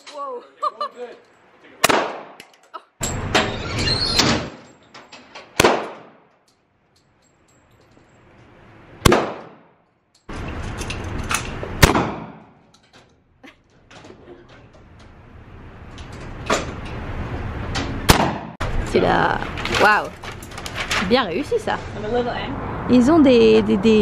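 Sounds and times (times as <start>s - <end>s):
gunshot echo off walls: 1.8s - 2.4s, 5.6s - 6.3s, 9.0s - 9.8s, 11.8s - 12.6s, 18.1s - 18.6s
handgun gunshots: 5.6s - 6.2s, 11.8s - 12.5s, 18.1s - 18.5s.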